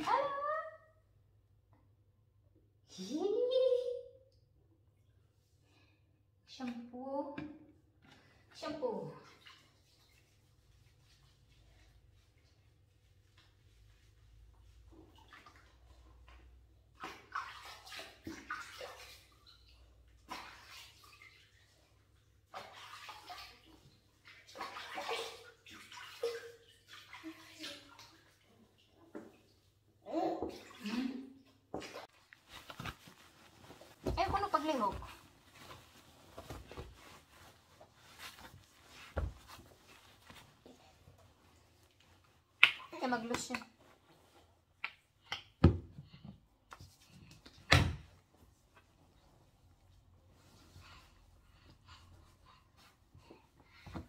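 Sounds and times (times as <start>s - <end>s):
water splashing in a baby bathtub: 0.0s - 1.7s, 4.9s - 54.0s
rubbing and rustling of fabric: 9.2s - 16.4s, 31.8s - 44.8s, 46.5s - 54.0s.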